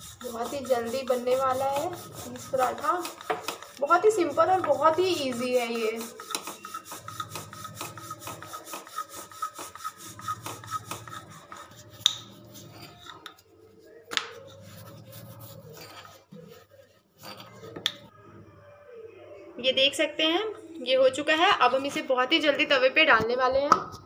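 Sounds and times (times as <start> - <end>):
rolling pin rubbing on dough: 0.0 - 18.1.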